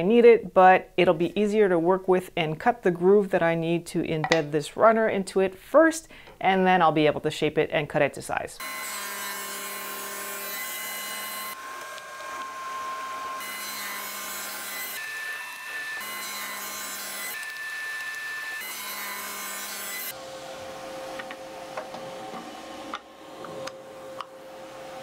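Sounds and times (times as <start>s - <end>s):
table saw cutting wood: 8.6s - 25.0s.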